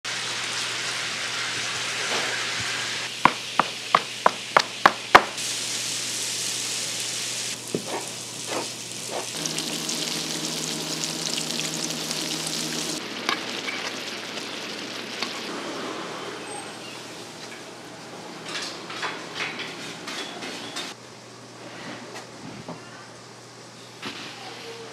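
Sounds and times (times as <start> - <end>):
dough sizzling in hot oil: 0.1 - 15.5.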